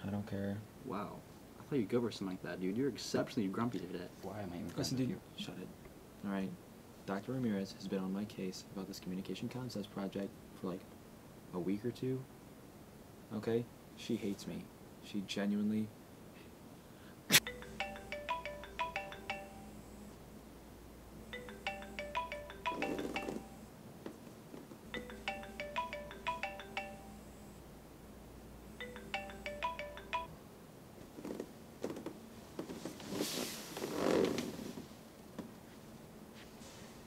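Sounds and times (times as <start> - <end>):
phone alarm marimba tune: 17.4 - 20.0, 21.4 - 23.7, 25.0 - 27.6, 28.8 - 30.4
bedclothes rustling: 31.0 - 37.0.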